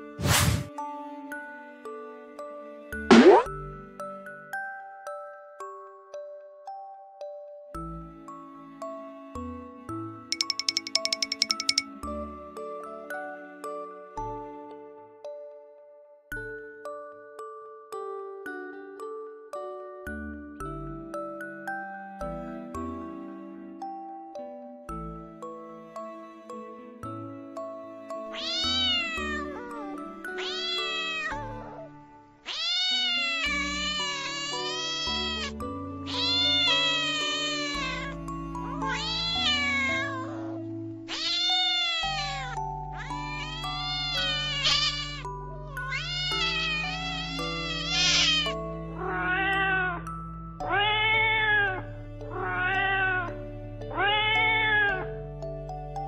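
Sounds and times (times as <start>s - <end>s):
light background music: 0.0s - 56.0s
cat meowing: 28.3s - 35.5s, 36.1s - 50.0s, 50.6s - 53.3s, 53.9s - 55.0s.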